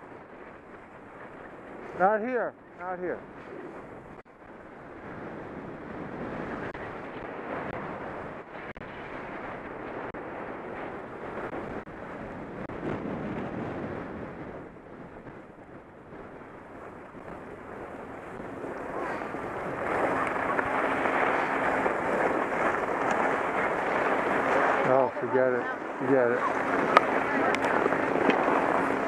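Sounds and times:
wind rushing over microphone: 0.0s - 29.0s
skis scraping over snow: 16.8s - 29.0s.

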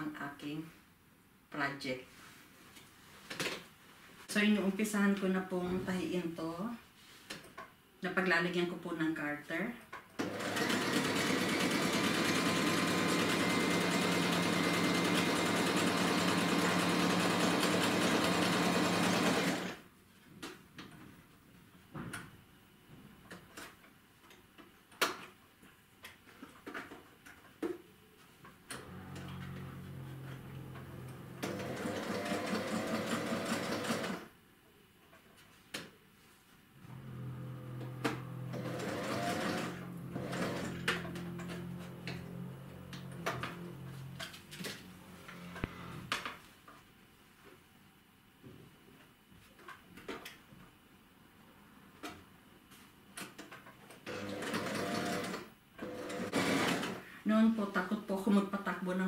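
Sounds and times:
sewing machine stitching: 10.2s - 19.8s, 28.7s - 34.3s, 36.9s - 45.9s, 54.0s - 57.0s.

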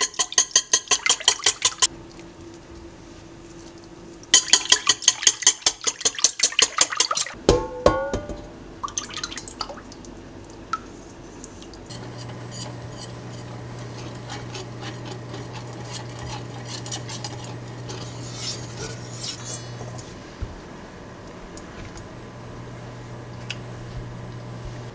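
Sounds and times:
whisk clicking against metal bowl: 0.0s - 1.9s, 11.9s - 18.0s
cooktop low hum: 0.0s - 6.1s, 7.3s - 24.9s
whisk scraping a saucepan: 11.9s - 20.2s.

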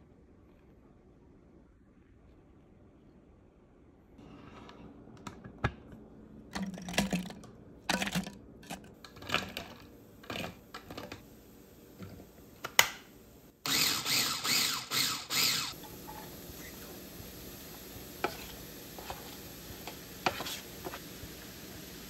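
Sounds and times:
food processor chopping pulses: 13.6s - 15.8s.

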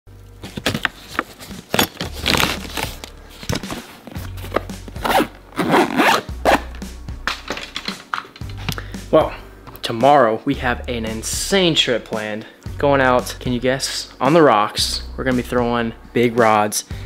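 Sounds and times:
background music with low bass: 0.1s - 17.0s
backpack zippers opening and closing: 1.6s - 6.8s.

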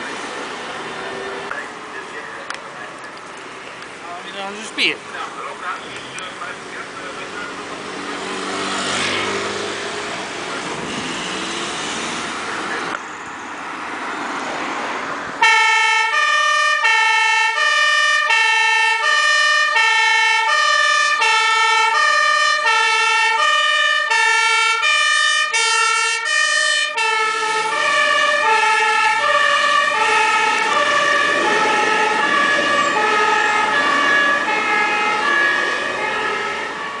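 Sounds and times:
street traffic passing: 0.0s - 37.0s
fire engine two-tone siren: 15.4s - 37.0s.

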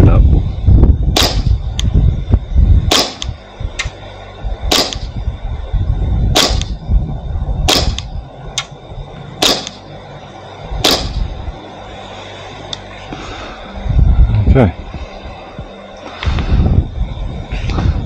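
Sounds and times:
wind rumble on microphone: 0.0s - 18.0s
airsoft pistol shots: 1.1s - 1.6s, 2.9s - 3.9s, 4.7s - 5.1s, 6.3s - 6.8s, 7.7s - 8.1s, 9.4s - 9.8s, 10.8s - 11.2s.

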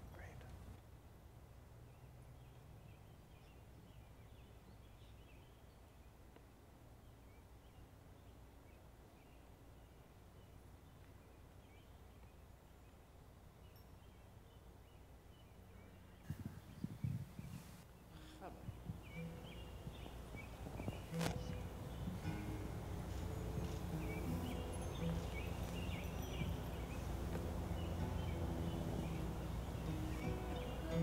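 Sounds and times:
low steady hum: 0.0s - 31.0s
high bird chirps: 16.2s - 31.0s.

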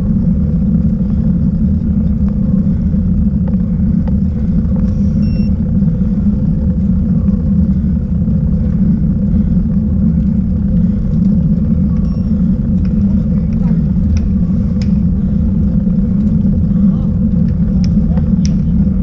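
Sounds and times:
faint steady hum: 0.0s - 19.0s
wind rumble on microphone: 0.0s - 19.0s
faint high beep: 5.2s - 5.5s, 12.0s - 12.4s.

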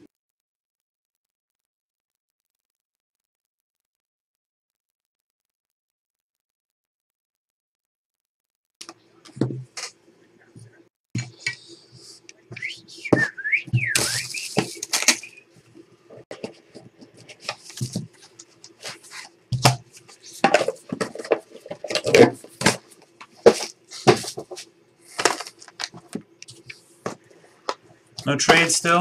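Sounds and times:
cards and plastic handled on table: 13.9s - 28.6s.

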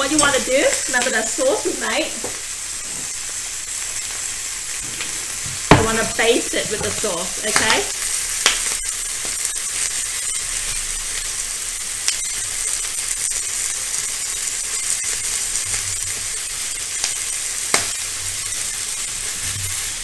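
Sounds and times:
utensils tapping grill: 0.0s - 1.3s, 4.8s - 9.4s
chicken sizzling on grill: 0.0s - 20.0s.

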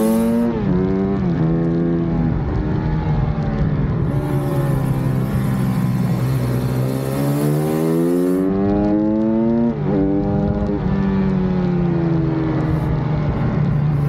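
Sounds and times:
motorbike engine revving: 0.0s - 2.0s, 4.0s - 11.0s.

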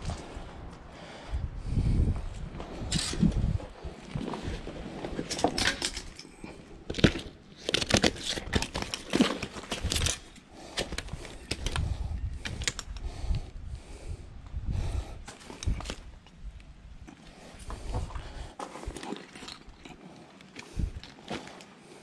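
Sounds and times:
backpack and gear rustling: 2.4s - 13.0s, 17.0s - 22.0s.

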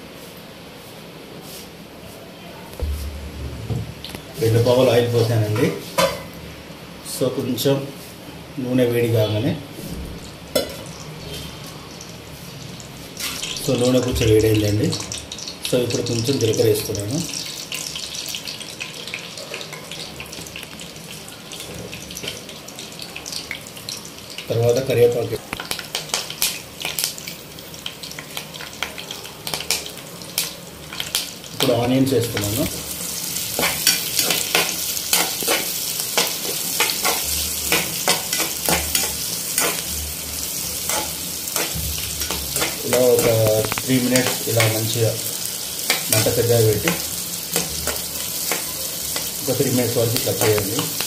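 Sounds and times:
seeds sizzling in hot oil: 9.8s - 51.0s
metal spoon scraping pan: 33.6s - 39.9s.

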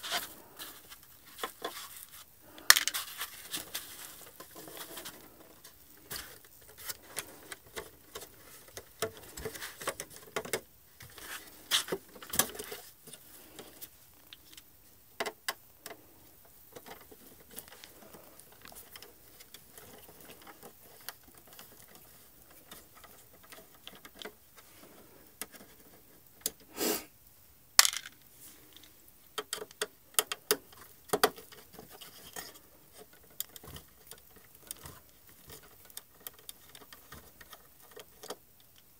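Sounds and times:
scraping rustle: 0.0s - 14.6s, 15.9s - 26.3s, 30.8s - 38.4s
small hand tools handled: 0.0s - 26.6s, 27.8s - 38.9s
clicks and taps of plastic parts: 4.1s - 11.2s, 14.3s - 24.6s, 28.8s - 38.9s.

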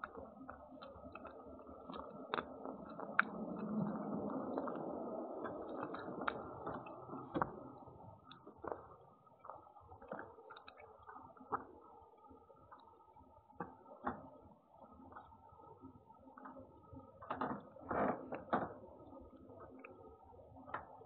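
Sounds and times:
cat chewing food: 0.0s - 11.9s.

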